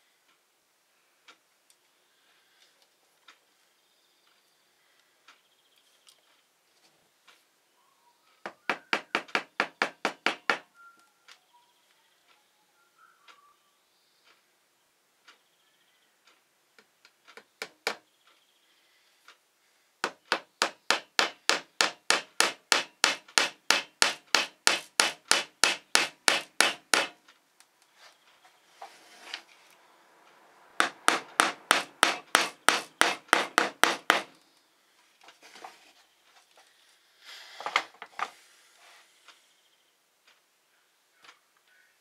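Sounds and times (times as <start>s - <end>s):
small hammer tapping a nail: 8.5s - 10.6s, 17.4s - 18.1s, 20.0s - 27.2s, 30.8s - 34.4s
wooden pieces knocking and rubbing: 20.0s - 27.2s, 30.8s - 34.4s, 37.6s - 38.4s.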